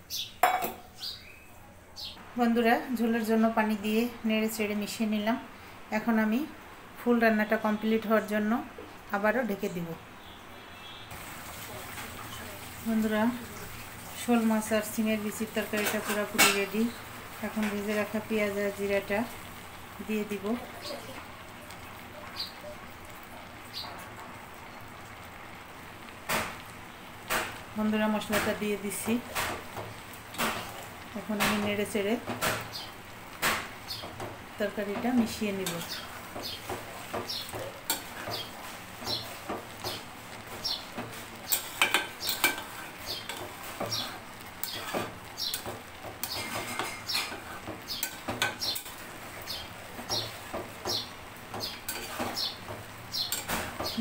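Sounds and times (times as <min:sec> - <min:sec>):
curry simmering in a pot: 0:03.0 - 0:54.0
metal spoon scraping a pot: 0:41.5 - 0:49.0, 0:51.8 - 0:52.4.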